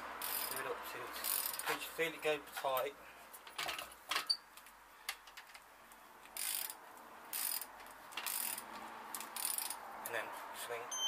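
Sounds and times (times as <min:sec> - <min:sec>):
ratchet wrench clicking: 0:00.2 - 0:00.6, 0:01.2 - 0:01.7, 0:06.3 - 0:09.8.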